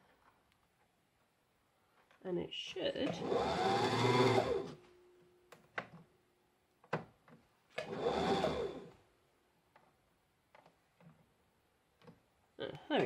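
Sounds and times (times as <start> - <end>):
sewing machine motor whirring: 3.1 - 4.8, 7.8 - 8.9.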